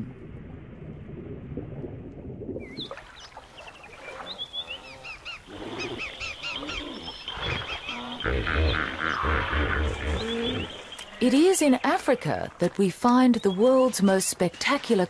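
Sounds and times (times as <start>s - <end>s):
dull low sound: 0.0s - 2.8s
birds calling: 2.6s - 15.0s.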